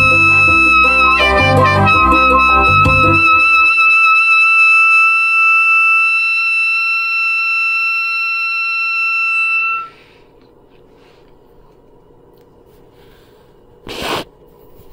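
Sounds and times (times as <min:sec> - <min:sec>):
saxophone long high note: 0:00.0 - 0:10.2.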